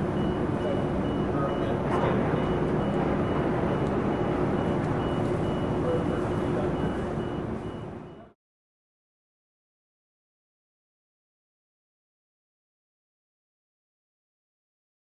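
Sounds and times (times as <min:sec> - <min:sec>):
low mechanical hum: 0:00.0 - 0:08.4
faint high beep: 0:00.1 - 0:01.8, 0:02.4 - 0:08.4.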